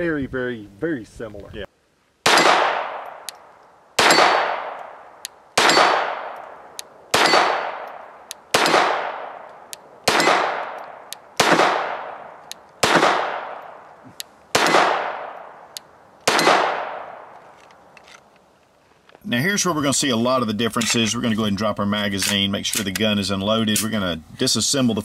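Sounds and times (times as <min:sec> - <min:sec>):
pistol shots ringing: 0:02.2 - 0:03.3, 0:04.0 - 0:13.8, 0:14.5 - 0:15.6, 0:16.2 - 0:17.3.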